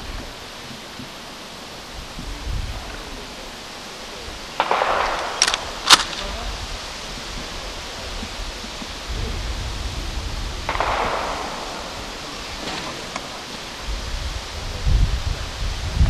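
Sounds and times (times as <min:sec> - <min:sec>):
rifle shot: 0:04.6 - 0:06.5, 0:10.7 - 0:13.3.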